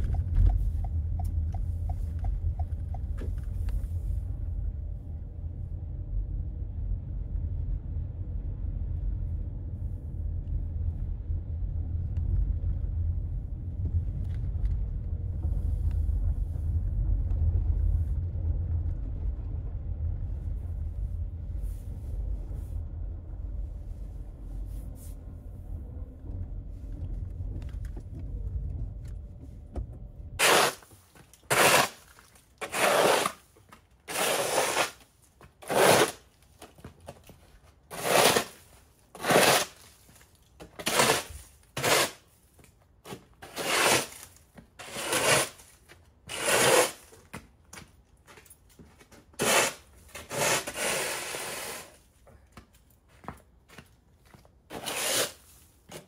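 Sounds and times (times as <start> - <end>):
low rumble: 0.0 - 32.6
rough scraping strokes: 30.4 - 33.5, 34.1 - 35.0, 35.6 - 36.2, 37.9 - 42.2, 43.1 - 47.2, 49.4 - 52.0, 54.7 - 56.0.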